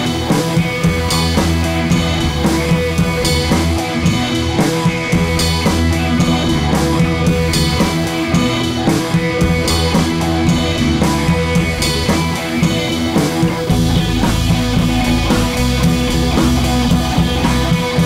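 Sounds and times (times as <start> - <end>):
drum kit beat: 0.0 - 18.0
electric guitar: 0.0 - 18.0
rock music: 0.0 - 18.0.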